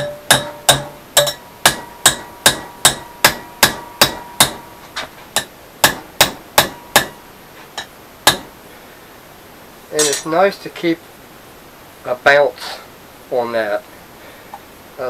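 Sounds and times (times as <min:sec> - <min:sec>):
hammer striking steel rod: 0:00.0 - 0:04.7, 0:05.4 - 0:07.2, 0:07.8 - 0:08.5, 0:10.0 - 0:10.3
steel rod ringing: 0:00.0 - 0:07.2, 0:10.0 - 0:10.4.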